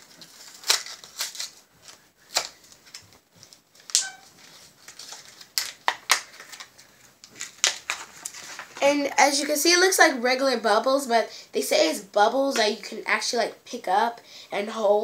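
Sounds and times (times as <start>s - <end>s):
plastic package crinkling: 0.0s - 8.9s.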